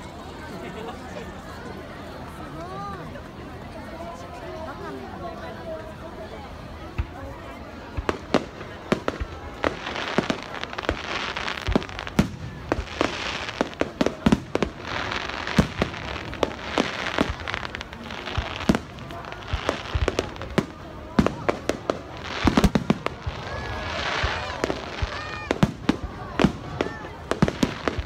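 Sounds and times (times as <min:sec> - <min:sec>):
hissing crackle of fireworks: 0:06.5 - 0:28.0
fireworks bursting bangs: 0:06.9 - 0:28.0.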